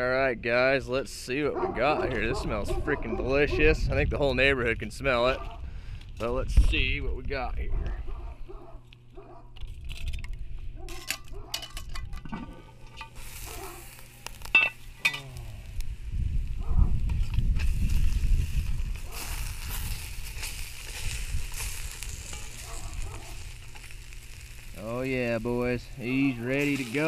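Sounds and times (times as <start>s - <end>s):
metal lid clinking: 10.9s - 13.2s, 14.5s - 15.2s
stew sizzling: 12.3s - 27.0s.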